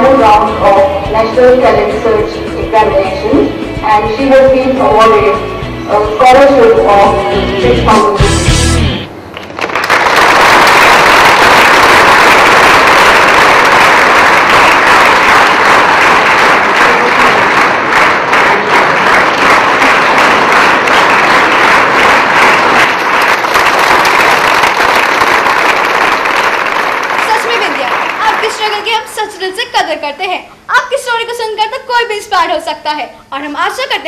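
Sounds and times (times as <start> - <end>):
crowd clapping: 9.3 - 29.1.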